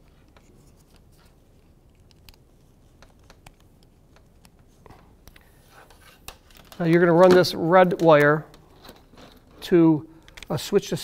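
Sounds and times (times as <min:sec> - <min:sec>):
clicks and taps of wires: 0:01.9 - 0:09.4, 0:10.2 - 0:10.6.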